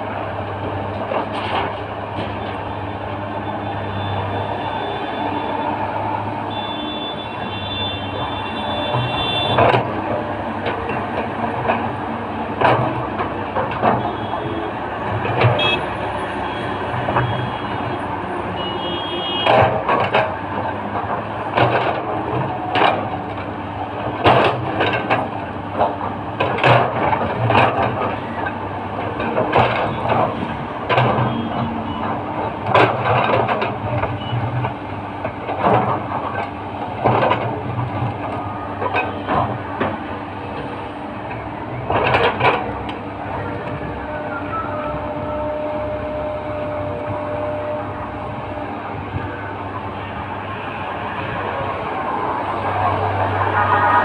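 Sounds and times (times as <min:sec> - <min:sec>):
diesel engine under load: 0:00.0 - 0:54.0
excavator bucket knocks and clanks: 0:08.6 - 0:15.8, 0:18.6 - 0:40.2
high thin whine: 0:51.8 - 0:54.0.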